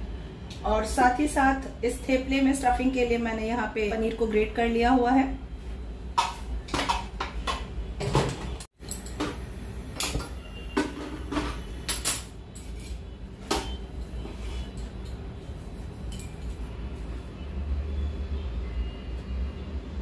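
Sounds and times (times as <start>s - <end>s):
kitchenware knocks and clinks: 6.2s - 13.8s.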